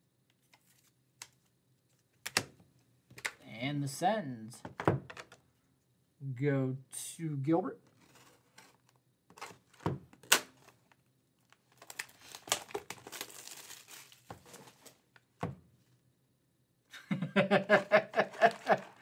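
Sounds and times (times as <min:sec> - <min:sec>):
plastic crinkling: 0:08.0 - 0:15.0
shrink wrap being slit: 0:11.8 - 0:14.3
man laughing: 0:16.9 - 0:19.0.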